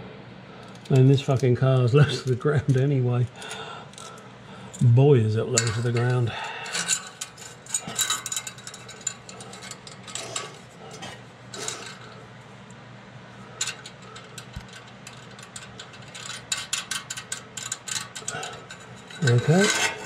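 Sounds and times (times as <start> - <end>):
clamps scraping metal pipe: 5.5 - 12.3, 13.5 - 20.0.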